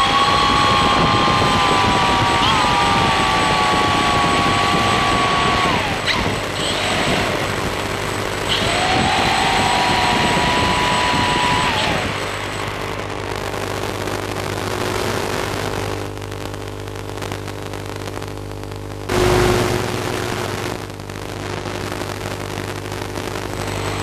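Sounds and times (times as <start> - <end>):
electrical hum: 0.0 - 24.0
motor revving: 1.2 - 12.9
sudden loud sound: 19.1 - 20.3.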